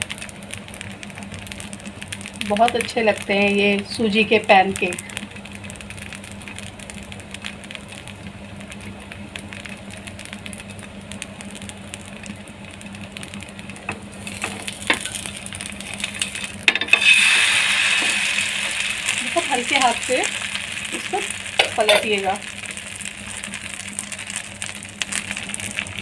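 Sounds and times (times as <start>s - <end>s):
batter frying quietly: 0.0s - 26.0s
faint crackles: 0.0s - 26.0s
loud sizzle: 0.0s - 26.0s.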